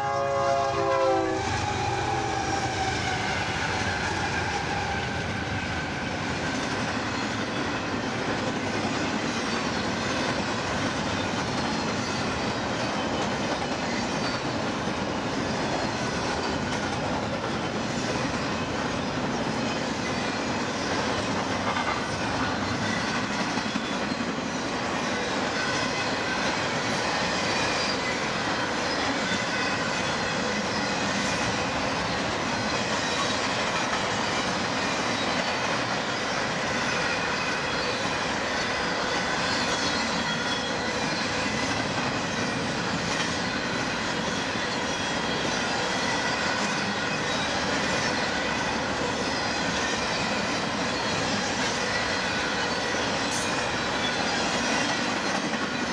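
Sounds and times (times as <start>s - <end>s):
train wheels on rails: 0.0s - 55.9s
clickety-clack of rail joints: 0.1s - 55.9s
high wheel squeal: 22.5s - 55.9s.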